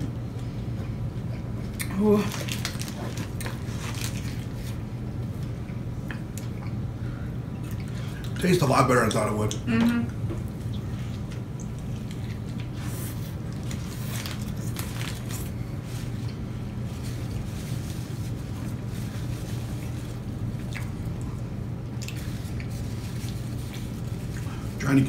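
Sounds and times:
people chewing: 0.7 - 6.8, 7.6 - 8.5, 9.5 - 24.8.

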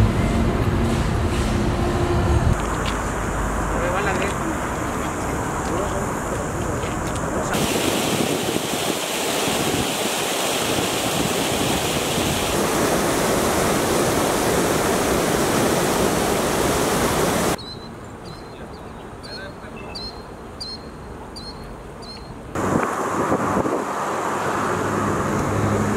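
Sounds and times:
floodwater rushing: 2.5 - 17.6, 22.5 - 25.9.

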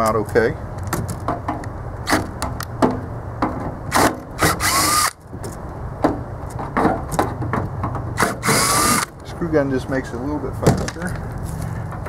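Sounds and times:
screw gun motor whining: 3.9 - 5.2, 8.2 - 9.1.

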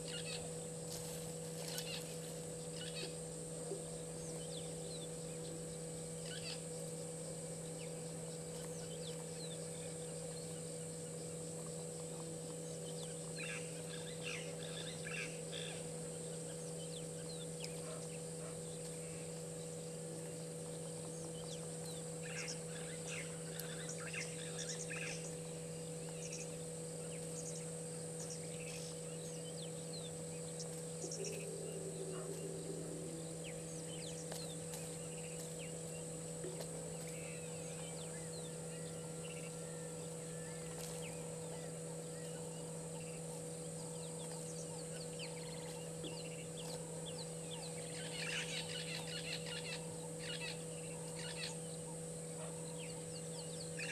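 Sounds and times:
steady background hum: 0.0 - 53.9
bird chattering calls: 31.0 - 35.4.

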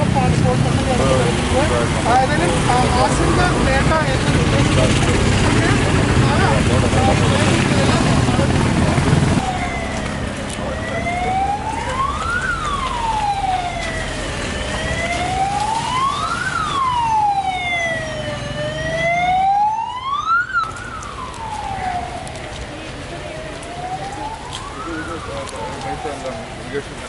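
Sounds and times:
siren wailing: 8.5 - 27.0.

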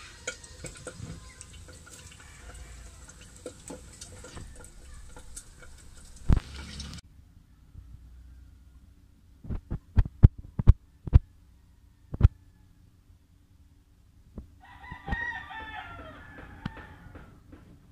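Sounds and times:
rooster crowing: 1.9 - 6.4, 7.5 - 8.9, 10.9 - 12.9, 14.6 - 17.5.

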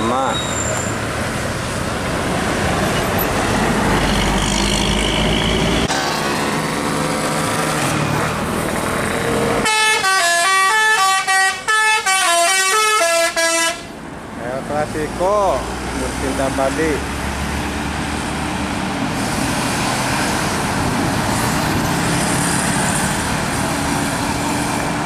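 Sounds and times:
bus engine and road noise: 0.0 - 25.0
musical air horn tune: 9.6 - 13.9.

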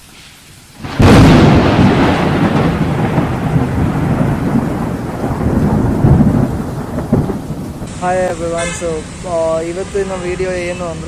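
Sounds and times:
high hiss: 0.0 - 1.1
thunder crash and rumble: 0.8 - 8.3.

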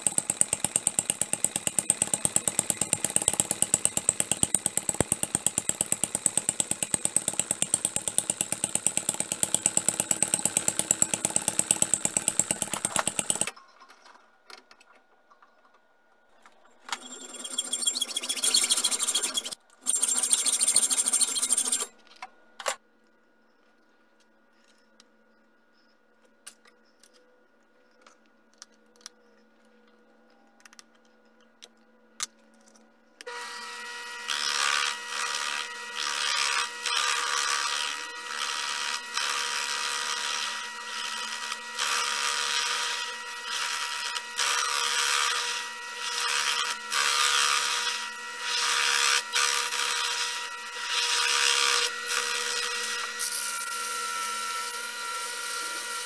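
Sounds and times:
mini lathe whining: 0.0 - 13.5, 16.9 - 21.9, 33.3 - 56.0
rasping cutting noise: 0.0 - 13.5, 16.9 - 21.9, 33.3 - 56.0.

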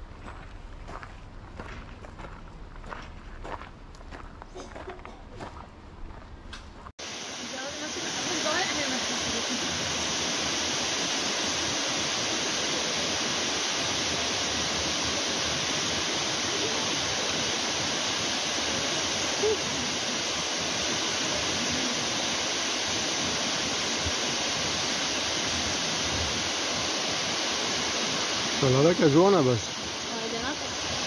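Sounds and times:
waterfall rushing: 7.0 - 31.0.

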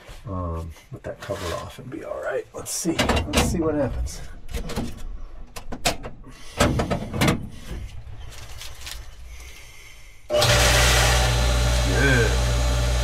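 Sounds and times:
water pump motor humming: 10.3 - 13.0.

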